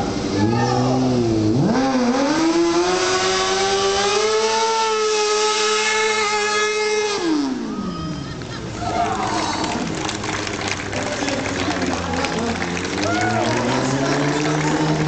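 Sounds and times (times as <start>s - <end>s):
motorcycle engine revving hard: 0.4s - 7.7s.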